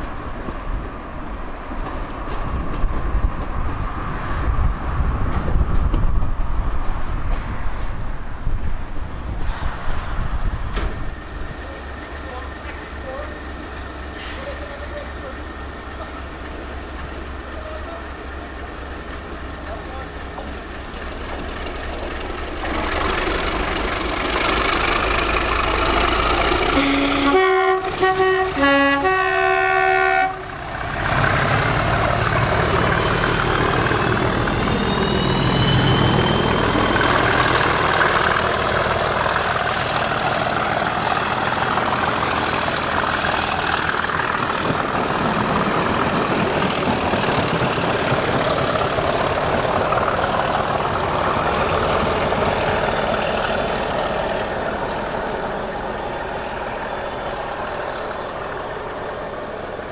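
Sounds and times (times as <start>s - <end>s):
coach rumbling on rails: 0.0s - 59.9s
diesel locomotive passing: 0.0s - 59.9s
two-tone locomotive horn: 26.7s - 30.6s.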